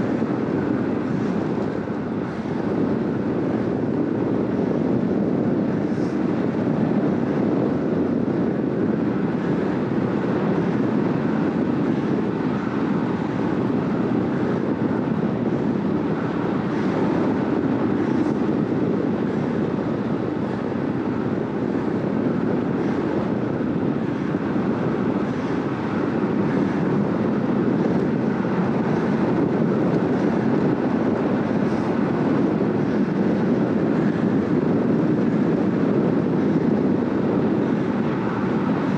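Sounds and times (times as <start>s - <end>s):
bike tyres humming on asphalt: 0.0s - 38.9s
wind rushing over microphone: 0.0s - 38.9s.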